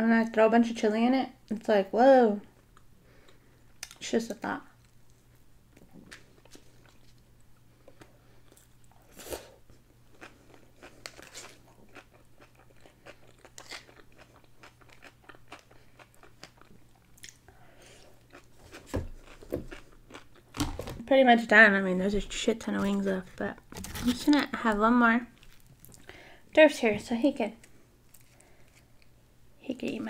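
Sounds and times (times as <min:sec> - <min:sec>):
chewing and crunching: 0:04.8 - 0:20.6, 0:25.4 - 0:26.1, 0:27.6 - 0:29.1.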